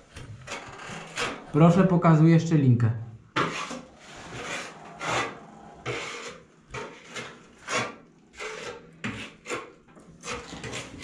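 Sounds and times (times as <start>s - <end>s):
short scraping strokes: 3.4s - 11.0s.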